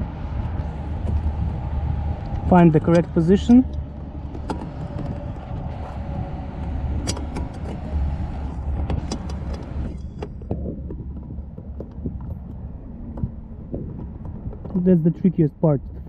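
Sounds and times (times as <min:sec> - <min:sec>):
low steady rumble: 0:00.0 - 0:16.0
plastic clicks and scrapes: 0:03.0 - 0:14.8.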